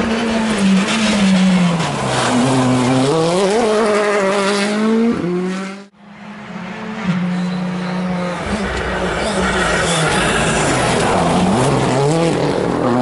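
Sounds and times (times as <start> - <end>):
rally car engine accelerating: 0.0 - 13.0.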